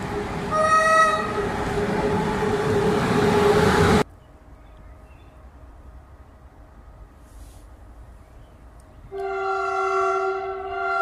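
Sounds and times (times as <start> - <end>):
train running noise: 0.0 - 11.0
train horn blast: 0.5 - 4.0, 9.1 - 11.0.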